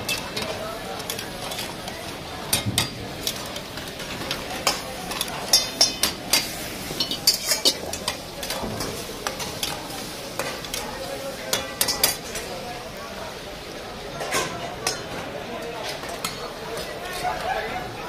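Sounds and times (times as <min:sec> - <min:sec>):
meat sizzling: 0:00.0 - 0:12.7
metal spatulas scraping woks: 0:02.5 - 0:10.8.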